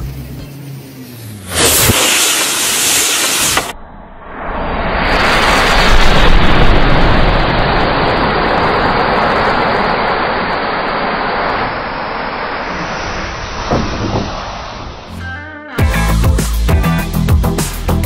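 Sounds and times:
matches flaring with rushing hiss: 0.0s - 3.8s, 4.7s - 15.1s.

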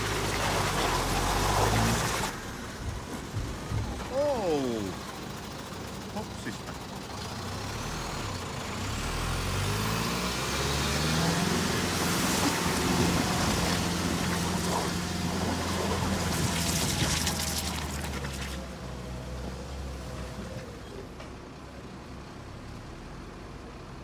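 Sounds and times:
rushing splashing water: 0.0s - 3.1s, 10.4s - 18.8s
diesel truck engine: 0.0s - 24.0s.

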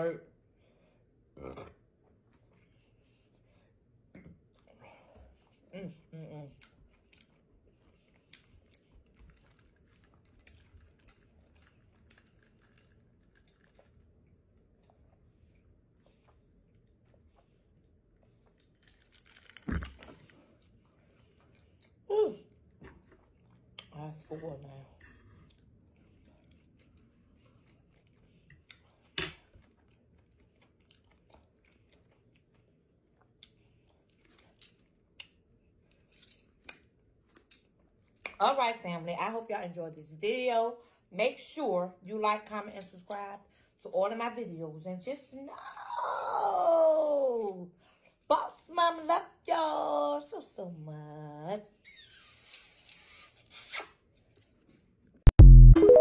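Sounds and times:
person chewing with wet smacks: 4.2s - 38.4s
sipping through a straw: 51.9s - 54.1s.

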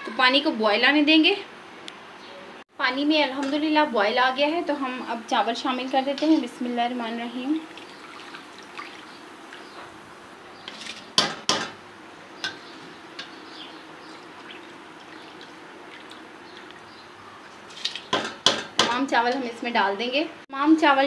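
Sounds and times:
water boiling in a pot: 2.8s - 10.6s, 11.2s - 19.8s
sharp knocks against a pot: 11.2s - 11.8s, 18.1s - 19.0s.

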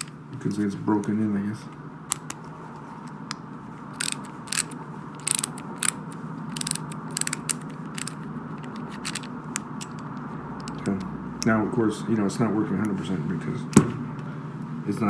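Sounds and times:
steady low hum: 0.0s - 15.0s
ratchet clicking: 4.0s - 10.0s.

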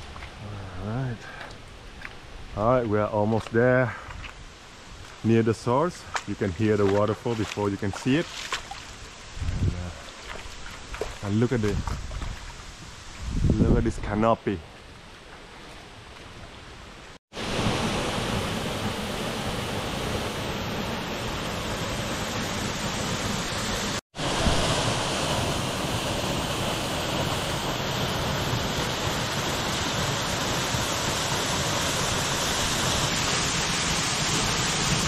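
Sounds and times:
waterfall rushing: 17.4s - 35.0s.

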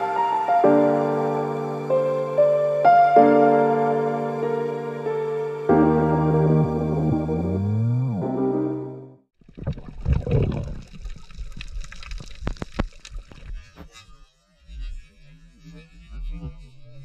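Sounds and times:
water gurgling and bubbling: 9.4s - 13.5s
sharp clicks and crackles: 9.5s - 13.9s.

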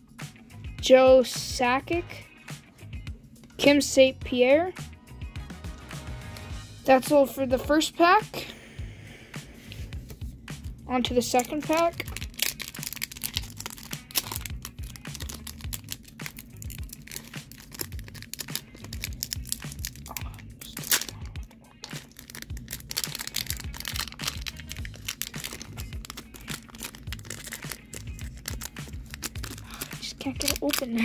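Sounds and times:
background music with pulsing beat: 4.2s - 7.6s, 8.2s - 10.9s
foil wrapper crinkling and tearing: 11.2s - 31.0s.

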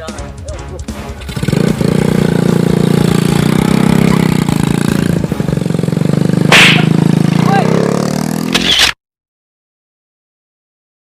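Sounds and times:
motor scooter engine pulling away: 1.2s - 8.6s.

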